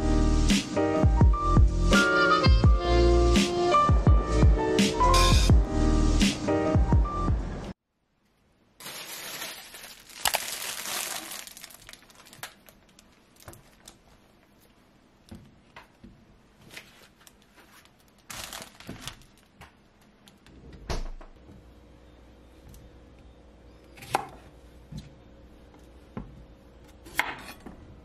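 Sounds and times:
plastic bags crinkling: 8.8 - 14.1, 16.7 - 19.6.

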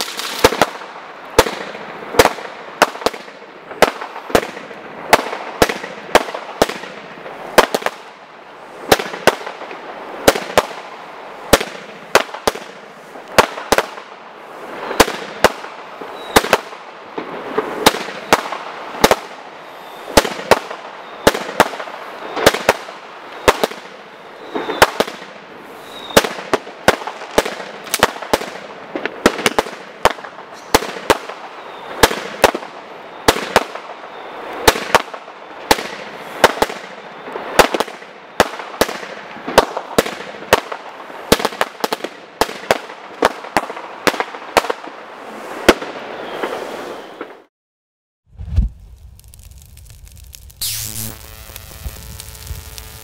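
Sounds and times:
firework hiss: 0.0 - 1.0, 24.4 - 26.4, 48.3 - 53.0
firework launch and burst bangs: 0.0 - 8.2, 8.8 - 19.4, 20.1 - 25.4, 26.1 - 32.7, 34.6 - 47.5, 48.3 - 52.8.

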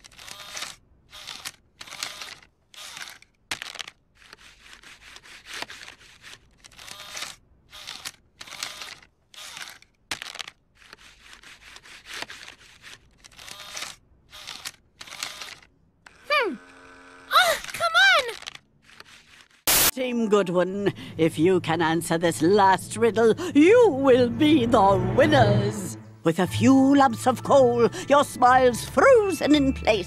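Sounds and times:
bill acceptor mechanical whir: 15.3 - 17.4.

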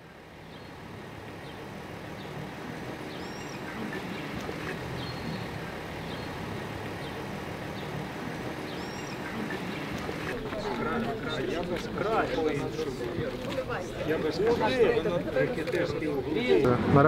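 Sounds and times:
traffic noise: 0.0 - 17.0
bird chirps: 3.1 - 6.4, 8.6 - 10.4.

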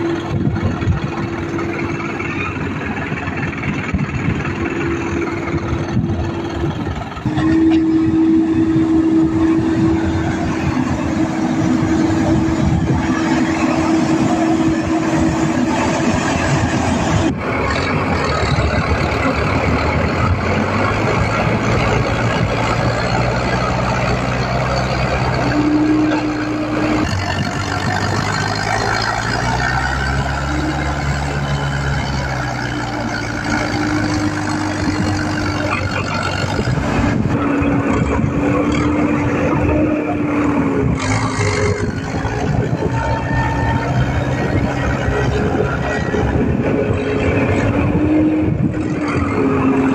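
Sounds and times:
truck diesel engine under load: 0.0 - 49.9
wheels churning through mud: 0.0 - 49.9.

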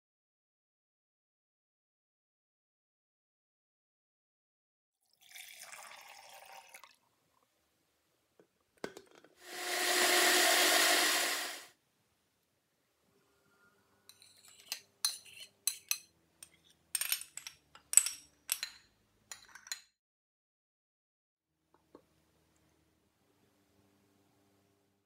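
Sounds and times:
blender running: 9.4 - 11.7
metal spoon clinking and scraping: 14.1 - 19.9.

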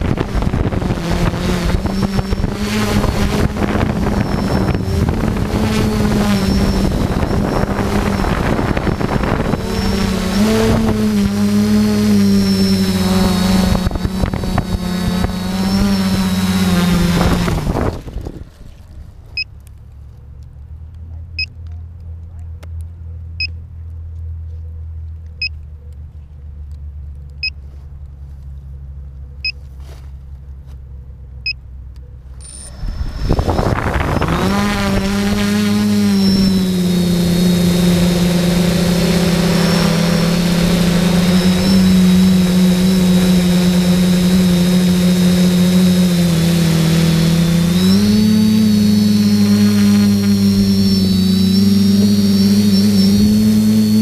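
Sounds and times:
quadcopter motors buzzing: 0.0 - 19.5, 32.3 - 54.0
low hum: 0.0 - 54.0
short electronic beeps: 32.4 - 33.4.

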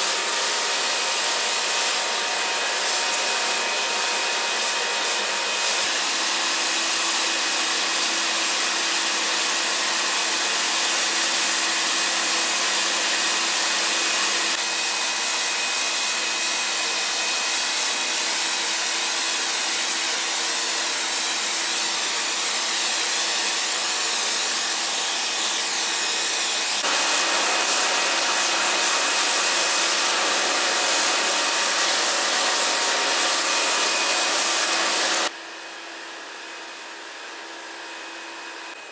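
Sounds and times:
machine hissing: 26.6 - 35.3.

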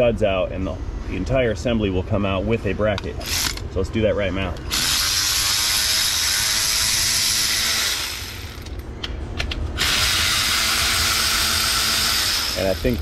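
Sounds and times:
electric ratchet whirring: 3.2 - 3.6, 4.7 - 8.8, 9.8 - 13.0.

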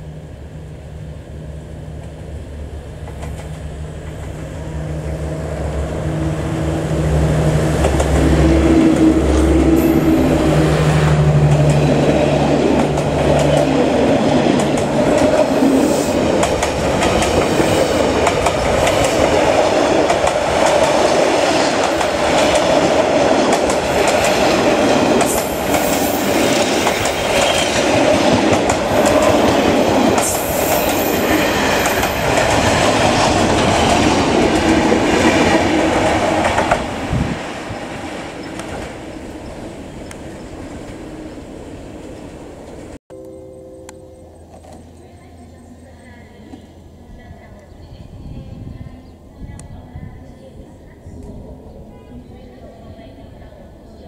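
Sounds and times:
diesel locomotive engine humming: 0.0 - 54.0
train wheels clickety-clack: 3.0 - 4.4, 7.8 - 9.1, 11.4 - 37.0.

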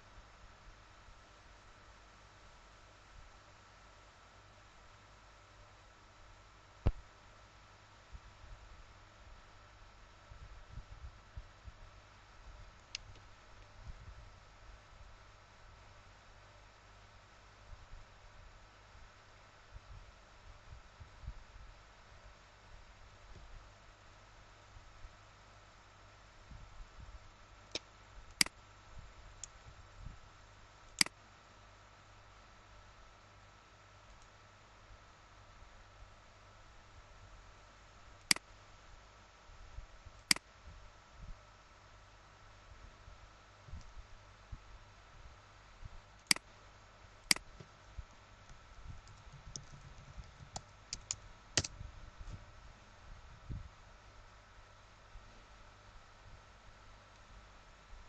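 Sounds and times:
faint steady hum: 0.0 - 58.0
computer mouse clicks: 30.9 - 31.2, 38.2 - 38.5, 40.2 - 40.5, 46.2 - 46.5, 47.3 - 47.7, 49.0 - 51.8.

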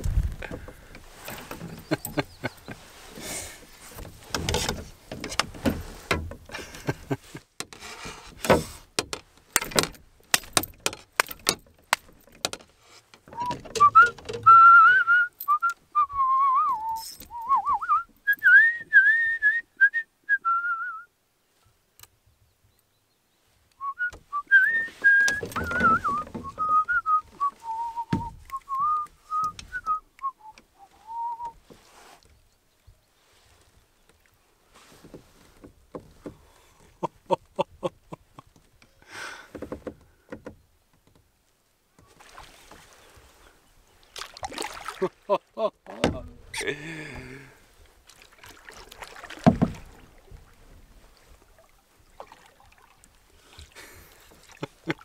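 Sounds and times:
sharp clicks and knocks: 3.9 - 6.6, 7.6 - 14.5
person whistling a tune: 13.4 - 21.1, 23.8 - 31.6.

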